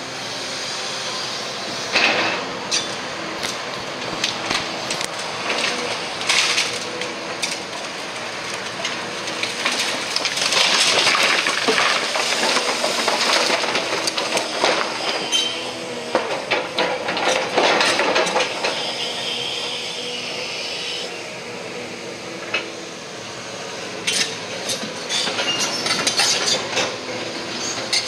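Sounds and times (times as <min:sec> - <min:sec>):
diesel engine under load: 0:00.0 - 0:28.0
breaking timber and falling debris: 0:02.0 - 0:19.0.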